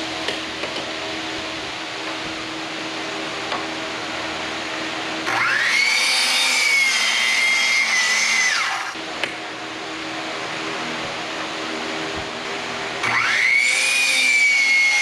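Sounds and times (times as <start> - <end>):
steady fan hum: 0.0 - 15.0
miter saw cutting wood: 5.2 - 9.0, 13.0 - 15.0.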